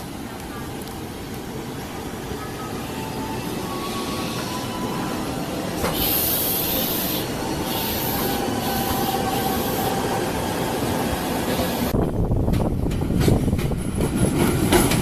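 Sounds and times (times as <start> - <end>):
train wheels rushing on rail: 0.0 - 15.0
train rumble with clacks: 10.7 - 15.0.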